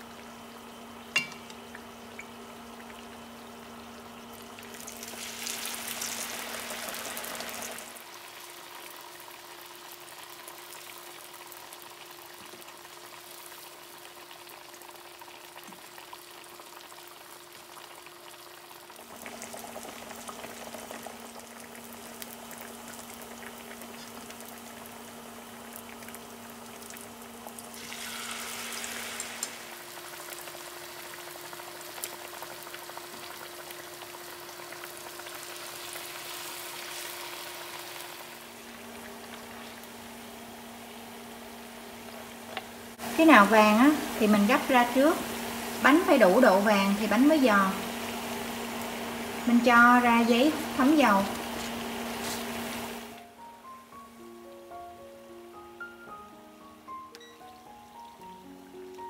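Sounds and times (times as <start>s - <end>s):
fritters deep-frying in hot oil: 0.0s - 40.9s, 41.9s - 53.1s.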